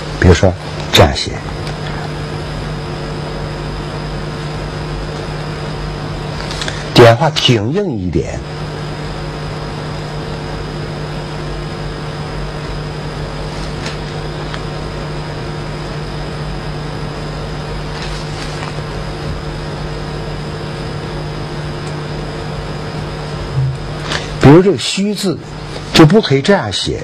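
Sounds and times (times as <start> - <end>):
low hum with hiss: 0.0 - 27.0.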